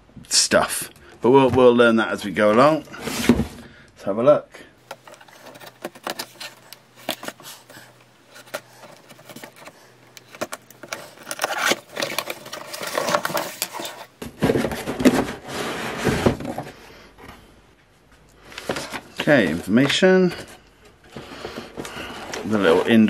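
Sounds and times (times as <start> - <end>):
cardboard rubbing and sliding: 5.2 - 16.7.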